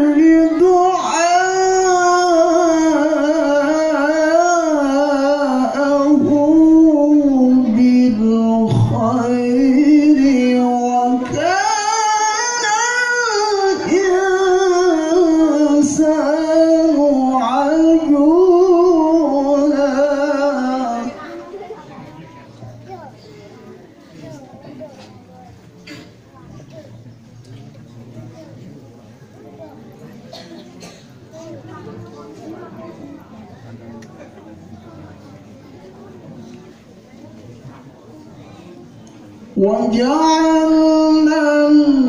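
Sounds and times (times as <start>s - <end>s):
man reciting melodically: 0.0s - 21.5s, 39.5s - 42.0s.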